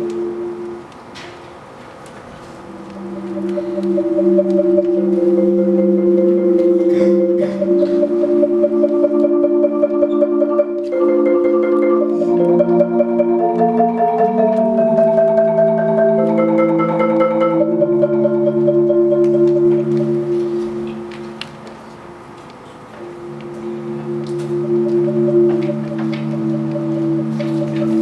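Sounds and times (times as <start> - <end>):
marimba rolled chords: 0.0 - 0.9, 2.6 - 21.6, 23.0 - 28.0.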